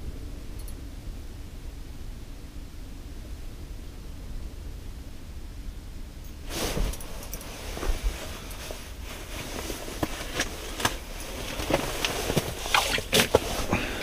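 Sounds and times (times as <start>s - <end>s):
clothing and gear rustling: 6.5s - 14.0s.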